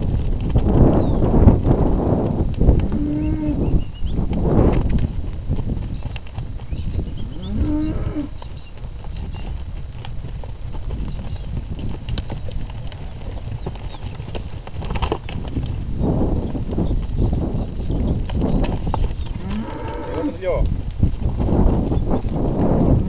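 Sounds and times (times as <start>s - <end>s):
calves mooing: 2.8s - 3.6s, 7.2s - 8.3s, 19.4s - 20.6s.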